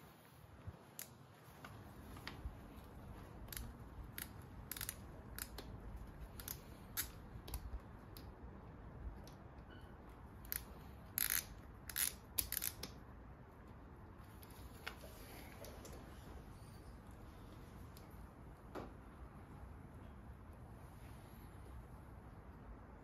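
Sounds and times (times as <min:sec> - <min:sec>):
metal parts clicking and tapping: 0:03.5 - 0:05.7.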